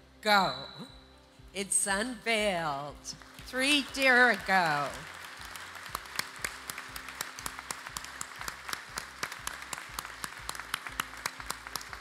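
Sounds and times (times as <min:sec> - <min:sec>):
large audience applauding: 0:03.2 - 0:12.0.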